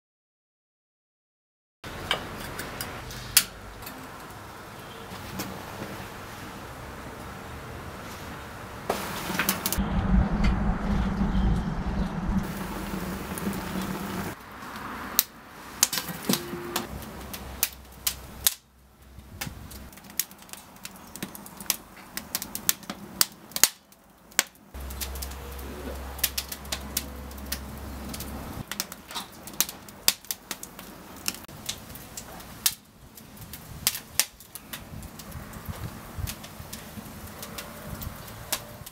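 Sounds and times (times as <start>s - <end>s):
wood fire crackling and popping: 8.8s - 9.8s, 12.4s - 38.9s.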